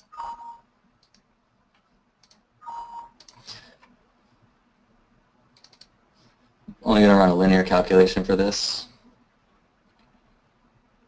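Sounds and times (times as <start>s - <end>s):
computer mouse clicks: 1.0s - 2.4s, 3.2s - 4.0s, 5.5s - 6.0s.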